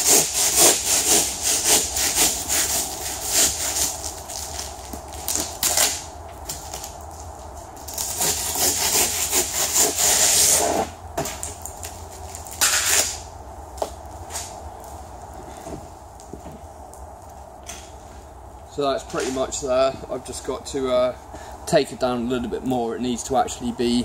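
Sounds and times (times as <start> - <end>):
hand saw rasping through foam: 0.0 - 4.0, 8.0 - 10.9.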